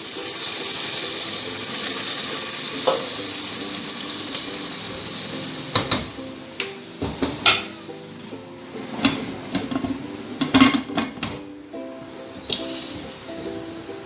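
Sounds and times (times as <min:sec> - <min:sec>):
meat sizzling in pot: 0:00.0 - 0:11.0, 0:12.2 - 0:14.0
water pouring: 0:12.3 - 0:13.6.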